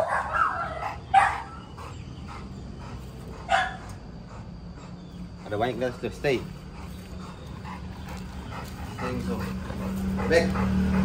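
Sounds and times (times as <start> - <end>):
dog barking: 0.0 - 1.7, 3.4 - 3.9.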